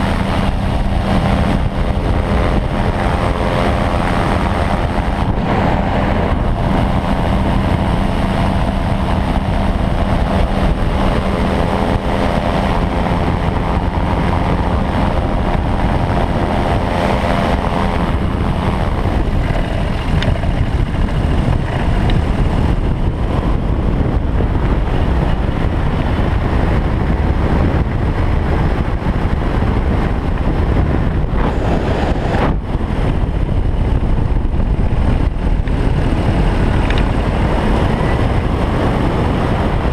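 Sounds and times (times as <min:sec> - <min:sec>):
steady multi-pitch hum: 0:00.0 - 0:26.1
air rushing: 0:00.0 - 0:39.9.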